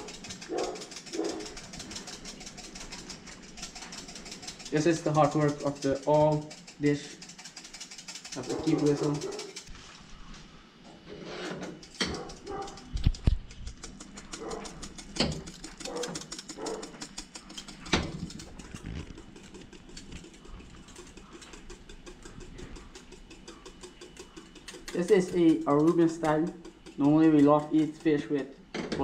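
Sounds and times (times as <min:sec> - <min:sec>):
whisk beating in a metal saucepan: 0:00.0 - 0:09.7, 0:11.9 - 0:28.5
whisk knocking against pan: 0:19.2 - 0:28.3.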